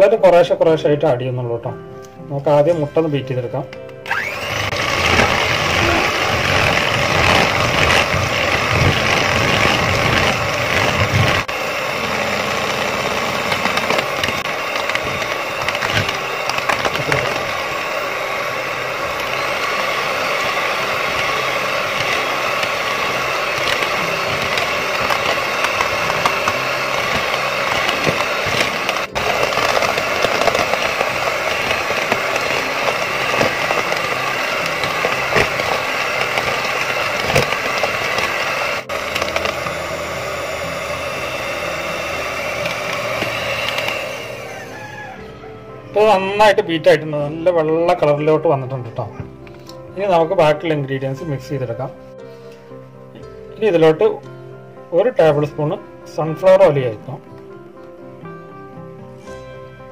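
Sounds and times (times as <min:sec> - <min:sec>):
electric hand mixer whipping: 0:04.0 - 0:50.8.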